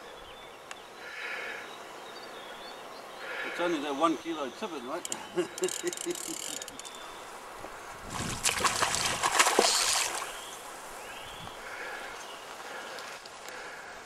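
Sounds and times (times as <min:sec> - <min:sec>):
fish splashing in water: 0:08.1 - 0:10.5.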